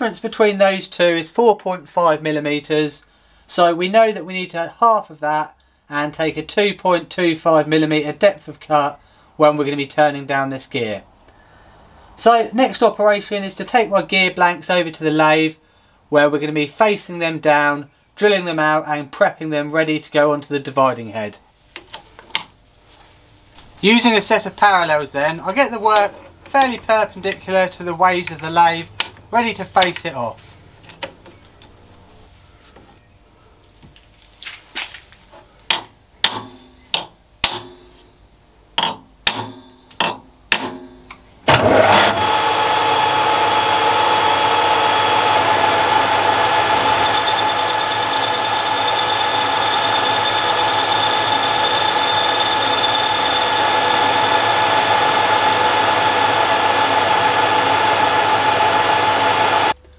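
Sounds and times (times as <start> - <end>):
lathe running with a whine: 41.6 - 59.8
high tone: 46.5 - 55.2.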